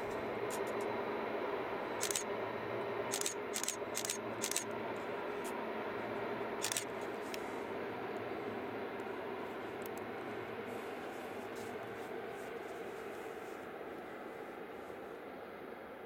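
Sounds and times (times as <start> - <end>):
distant train rumble: 0.0 - 16.0.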